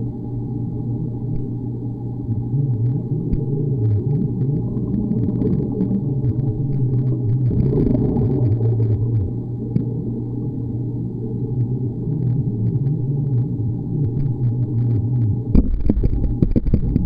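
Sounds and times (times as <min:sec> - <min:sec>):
underwater low rumble: 0:00.0 - 0:17.0
wavering hum: 0:00.0 - 0:17.0
faint clicks: 0:14.0 - 0:17.0.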